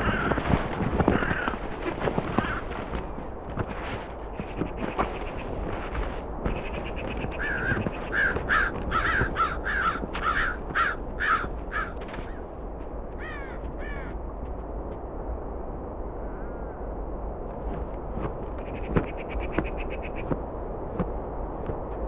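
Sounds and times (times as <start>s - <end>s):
crows cawing: 0.0s - 3.1s, 6.5s - 12.5s, 13.2s - 14.2s, 18.6s - 20.3s.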